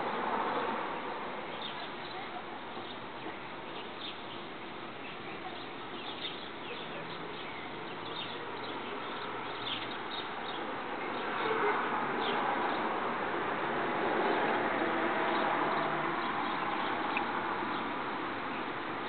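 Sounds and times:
broad noise: 0:00.0 - 0:19.0.

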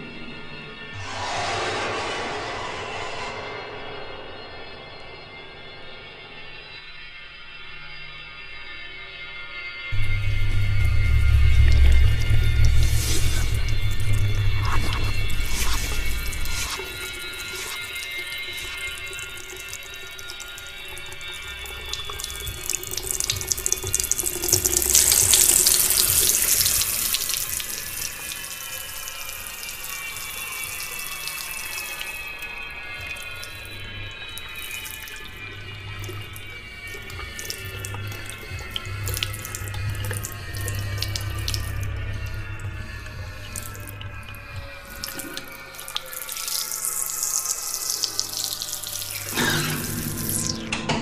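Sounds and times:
faint falling tones: 0:01.0 - 0:06.5.

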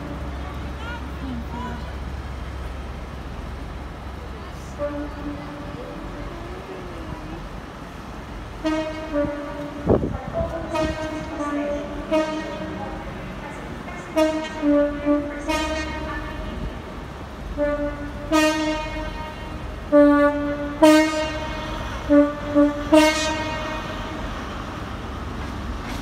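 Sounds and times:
low rumble of standing trains: 0:00.0 - 0:26.0
train two-tone horn blasts: 0:04.7 - 0:05.8, 0:08.6 - 0:24.6.

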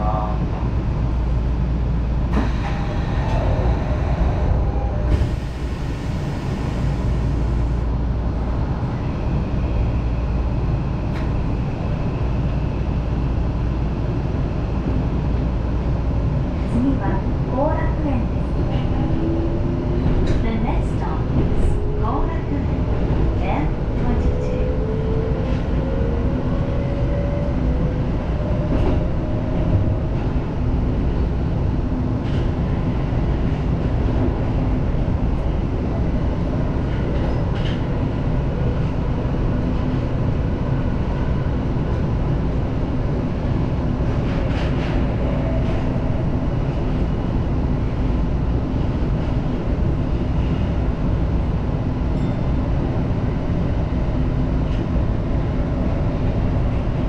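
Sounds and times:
subway train wheels rumbling: 0:00.0 - 0:57.0.

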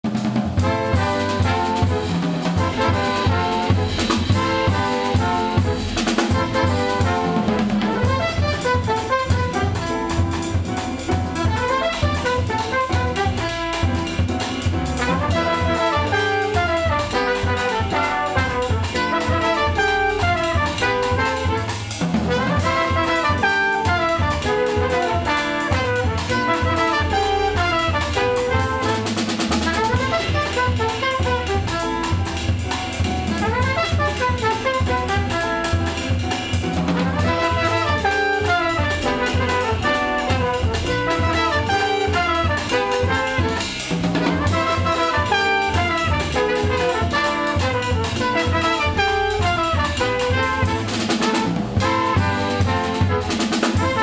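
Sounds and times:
bass: 0:00.0 - 0:54.0
drum kit: 0:00.0 - 0:54.0
trombone: 0:00.0 - 0:54.0
trumpet: 0:00.0 - 0:54.0
alto saxophone: 0:00.2 - 0:54.0.

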